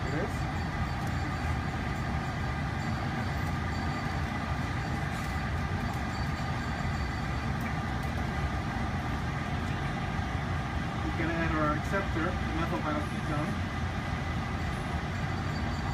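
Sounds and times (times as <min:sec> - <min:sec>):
fume hood exhaust airflow: 0:00.0 - 0:15.9.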